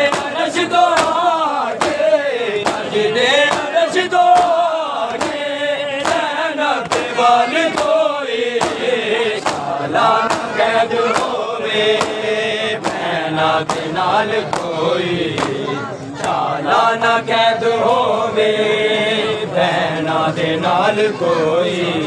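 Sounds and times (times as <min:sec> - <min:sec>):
hands slapping chests: 0:00.0 - 0:08.0, 0:08.6 - 0:12.2, 0:12.8 - 0:14.8, 0:15.4 - 0:15.6
crowd of men chanting: 0:00.0 - 0:22.0.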